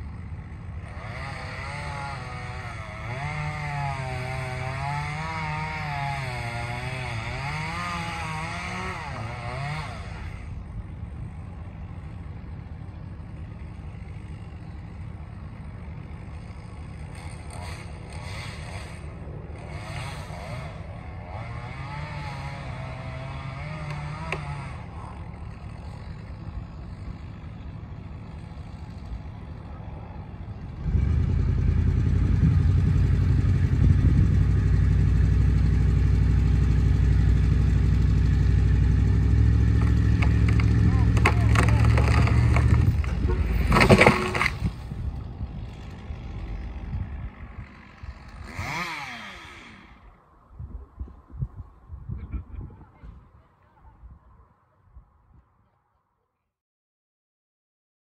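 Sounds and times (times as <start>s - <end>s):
distant chainsaw running: 0.0s - 50.3s
vehicle engine running: 6.4s - 50.1s.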